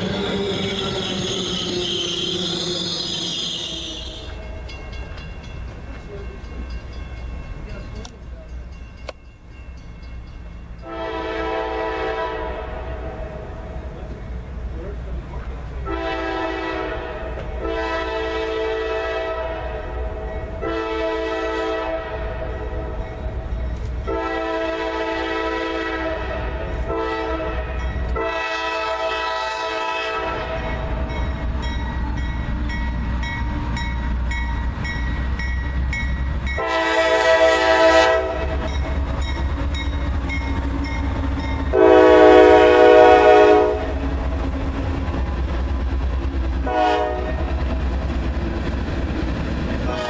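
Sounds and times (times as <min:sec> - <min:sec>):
passing train rumble: 0:00.0 - 0:50.0
locomotive air horn blasts: 0:10.8 - 0:13.5, 0:15.8 - 0:22.8, 0:24.1 - 0:30.8, 0:36.6 - 0:38.6, 0:41.7 - 0:44.0, 0:46.6 - 0:47.4.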